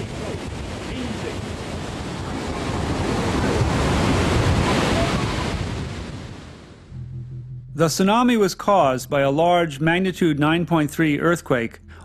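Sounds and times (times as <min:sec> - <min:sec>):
churning crashing water: 0:00.0 - 0:06.9
wind buffeting microphone: 0:00.0 - 0:07.6.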